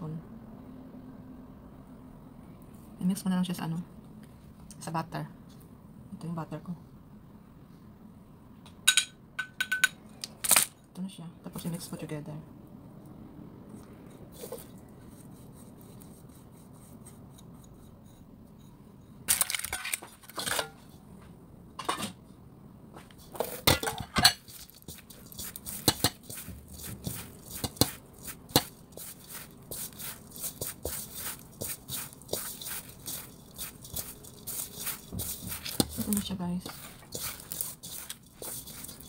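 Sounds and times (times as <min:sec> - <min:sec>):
hands mixing dough in metal bowl: 0:13.7 - 0:21.0, 0:23.0 - 0:39.0.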